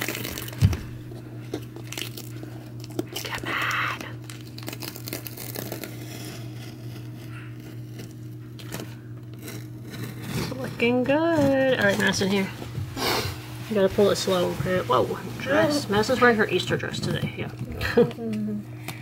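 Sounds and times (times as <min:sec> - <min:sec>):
tape being peeled off: 0:04.2 - 0:10.6.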